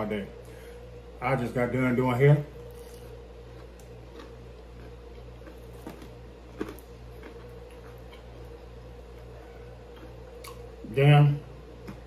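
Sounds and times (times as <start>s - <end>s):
steady low hum: 0.0s - 12.0s
chewing food: 2.6s - 10.8s, 11.7s - 12.0s.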